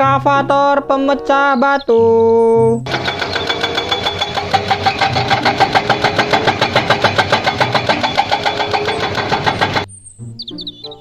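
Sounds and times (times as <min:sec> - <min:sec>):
excavator engine running: 0:02.8 - 0:09.9
hydraulic breaker pounding rock: 0:02.9 - 0:09.9.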